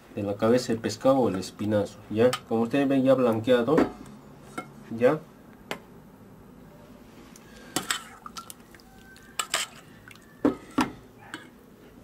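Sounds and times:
metal spoon clinking in a bowl: 0:09.3 - 0:09.9.

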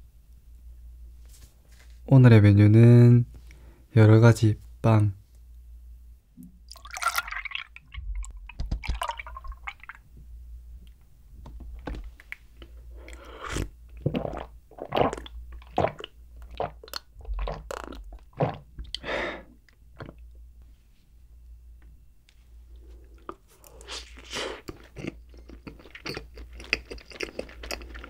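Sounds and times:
milk pouring into a mug: 0:06.7 - 0:10.0
gulping and swallowing: 0:13.0 - 0:19.0.

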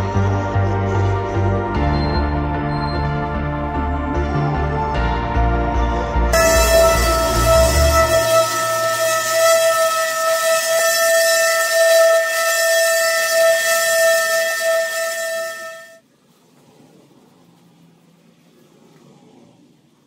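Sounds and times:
orbital sander whining: 0:06.4 - 0:16.0.

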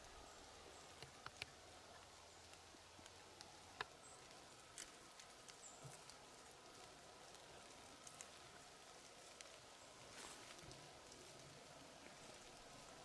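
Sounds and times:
faint sharp ticks: 0:01.0 - 0:04.0.

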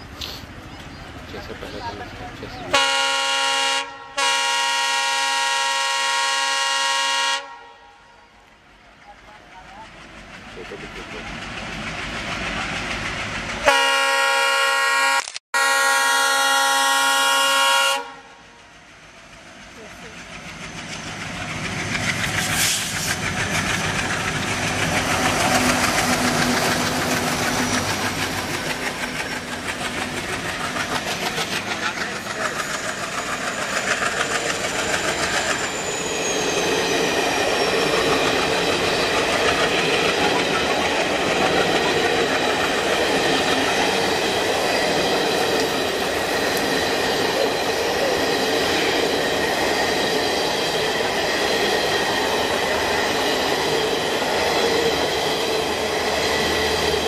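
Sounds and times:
diesel locomotives chugging: 0:00.0 - 0:15.0, 0:15.6 - 0:57.0
train coaches passing: 0:00.0 - 0:57.0
locomotive air horn blast: 0:02.7 - 0:08.1, 0:13.6 - 0:18.4.

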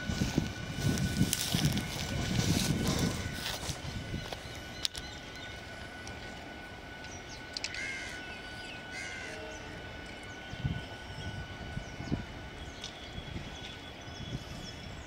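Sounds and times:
electric train rumbling: 0:00.0 - 0:15.0
bird calling: 0:07.1 - 0:10.5.

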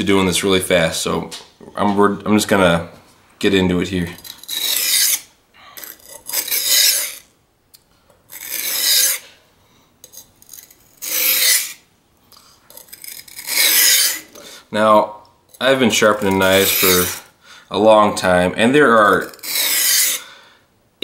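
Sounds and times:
knife rasping on whetstone: 0:04.2 - 0:05.2, 0:05.8 - 0:07.2, 0:08.3 - 0:09.2, 0:10.5 - 0:11.8, 0:12.7 - 0:14.4, 0:16.0 - 0:17.3, 0:19.2 - 0:20.2.

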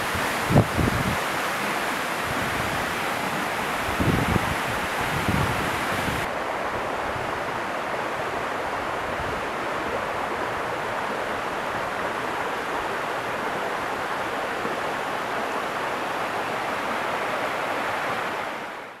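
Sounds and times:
waterfall roaring: 0:00.0 - 0:19.0.

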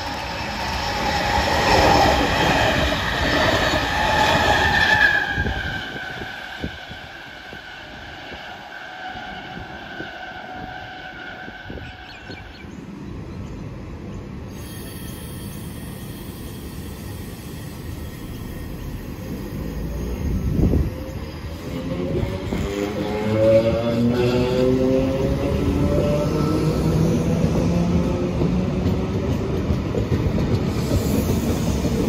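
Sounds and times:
train rumbling along platform: 0:00.0 - 0:32.0
loud train clatter: 0:14.6 - 0:32.0.

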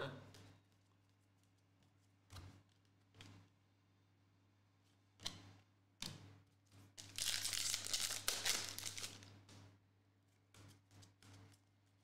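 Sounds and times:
foil wrapper crinkling: 0:07.0 - 0:09.3.

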